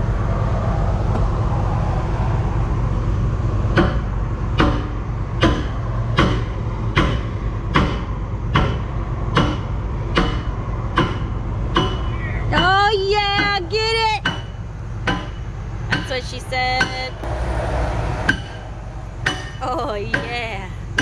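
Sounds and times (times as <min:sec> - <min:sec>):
diesel engine idling: 0:00.0 - 0:21.0
hammer striking steel: 0:03.7 - 0:12.7, 0:14.2 - 0:21.0.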